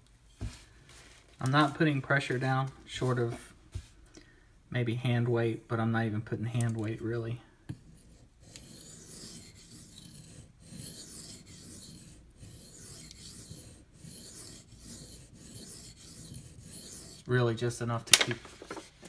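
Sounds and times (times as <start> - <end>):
knife scraping on sharpening stone: 7.9 - 17.3.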